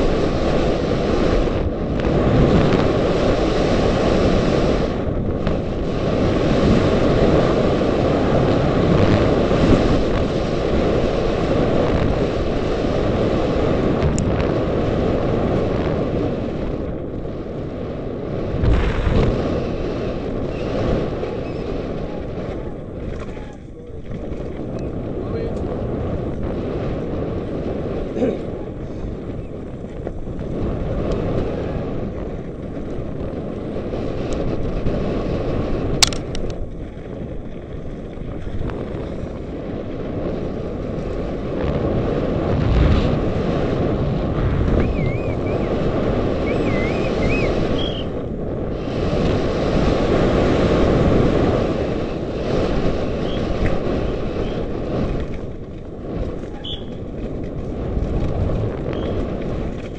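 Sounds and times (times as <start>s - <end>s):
bike tyres on dirt and gravel: 0.0s - 59.9s
wind rushing over microphone: 0.0s - 59.9s
sharp click: 36.0s - 36.5s.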